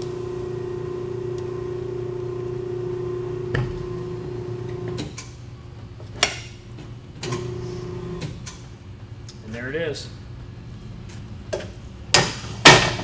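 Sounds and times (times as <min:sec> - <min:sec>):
tyre changer motor humming: 0:00.0 - 0:05.2.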